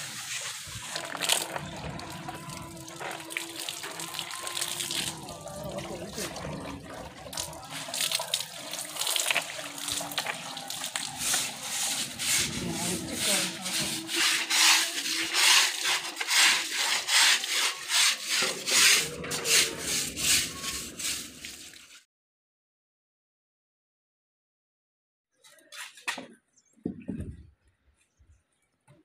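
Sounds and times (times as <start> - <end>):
scrubbing wet rope bed: 0.0 - 22.0.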